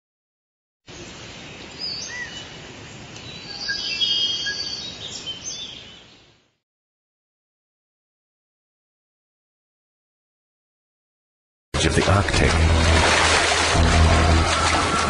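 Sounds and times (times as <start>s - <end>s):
birds chirping and whistling: 1.8s - 2.6s, 3.2s - 6.2s.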